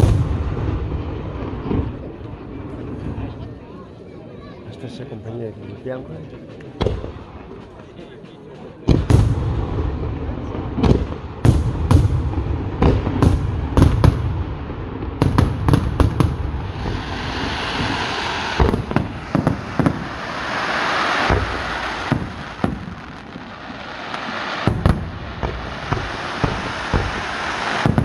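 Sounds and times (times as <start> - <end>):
fireworks bangs and booms: 0.0 - 3.7, 6.7 - 28.0
rushing hiss: 16.4 - 28.0.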